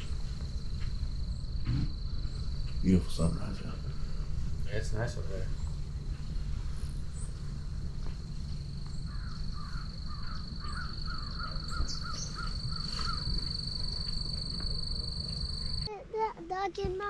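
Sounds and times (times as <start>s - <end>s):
low rumble: 0.0s - 15.9s
steady high-pitched tone: 0.0s - 15.9s
bird calling short notes: 9.0s - 14.9s.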